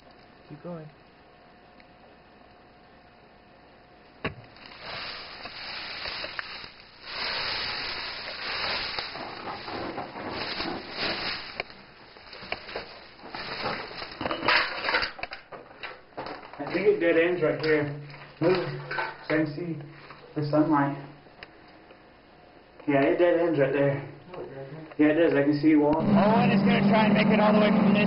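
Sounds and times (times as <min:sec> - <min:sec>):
person crawling on dirt and rock: 0:04.7 - 0:14.2.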